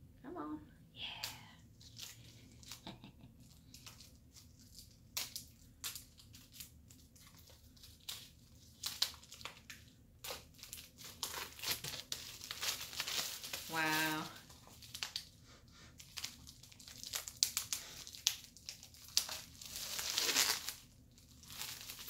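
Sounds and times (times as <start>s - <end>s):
plastic shrink-wrap crinkling and tearing: 1.2s - 22.0s.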